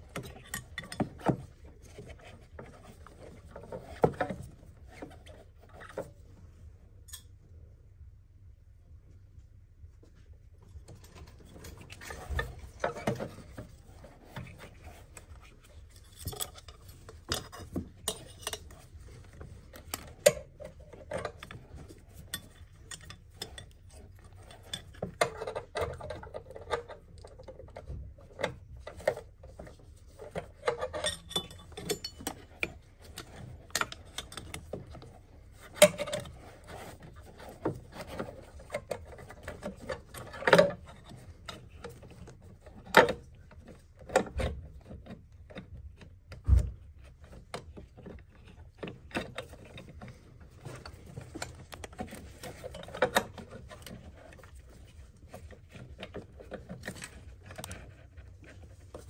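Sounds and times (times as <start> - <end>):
metallic clicks and clinks of tools: 30.7 - 32.7.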